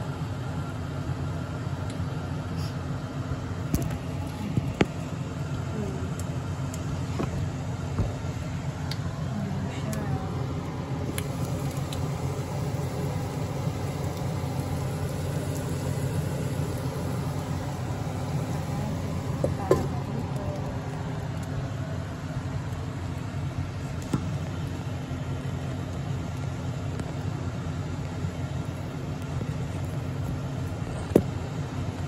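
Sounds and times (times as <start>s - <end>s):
meat frying in a pan: 10.6s - 27.2s.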